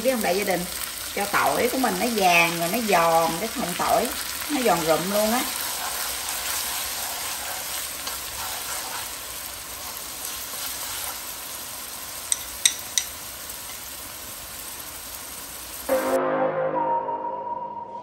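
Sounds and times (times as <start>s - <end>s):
garlic sizzling in hot oil: 0.0s - 15.9s
chopsticks stirring in wok: 1.3s - 14.2s.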